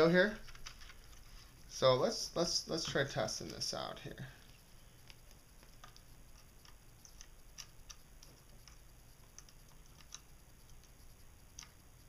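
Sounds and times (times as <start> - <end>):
probe tips clicking on pins: 2.7 - 3.8, 4.4 - 12.0.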